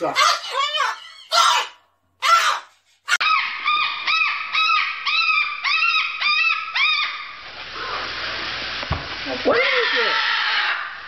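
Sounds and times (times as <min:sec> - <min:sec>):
cockatoo squawking: 0:00.0 - 0:07.4, 0:09.6 - 0:11.0.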